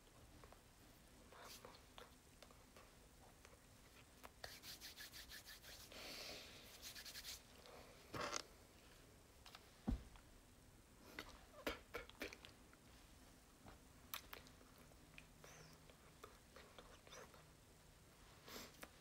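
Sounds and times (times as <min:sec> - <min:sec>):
hands rubbing on clothing: 0:04.3 - 0:06.0, 0:06.6 - 0:07.5
soft knock: 0:09.8 - 0:10.2.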